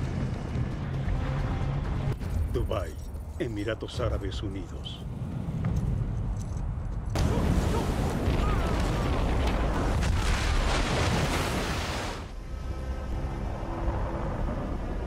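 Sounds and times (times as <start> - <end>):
rush of crashing water: 7.2 - 12.4.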